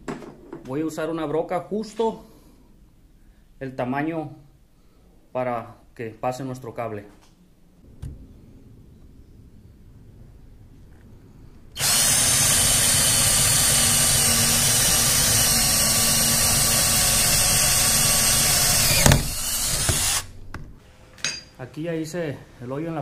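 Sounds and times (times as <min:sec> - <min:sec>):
drill boring through wood: 0:11.8 - 0:20.3.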